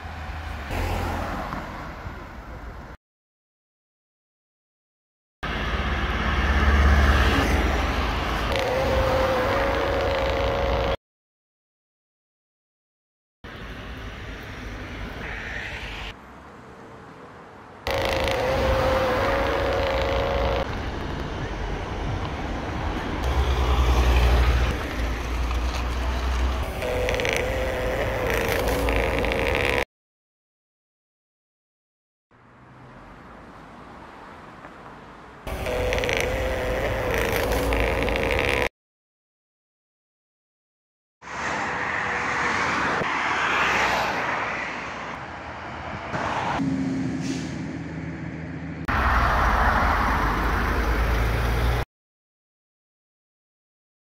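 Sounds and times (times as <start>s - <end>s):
highway traffic passing: 0.0s - 3.0s, 5.4s - 11.0s, 13.5s - 29.8s, 32.3s - 38.7s, 41.2s - 51.9s
heavy vehicle rumble: 16.0s - 29.8s, 33.0s - 38.7s, 45.8s - 51.8s
steady engine hum: 16.3s - 29.8s, 35.2s - 38.6s.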